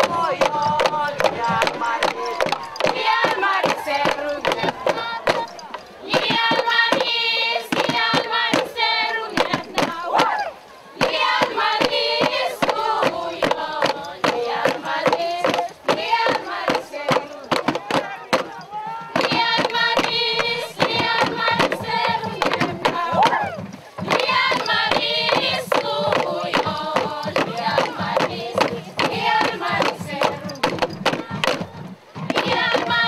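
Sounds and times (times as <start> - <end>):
group of voices singing: 0.0 - 33.0
sharp percussive strikes: 11.0 - 33.0.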